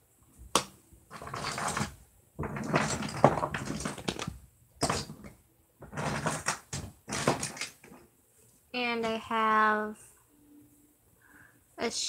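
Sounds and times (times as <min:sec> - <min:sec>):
toys rustling and knocking: 0:00.6 - 0:08.1.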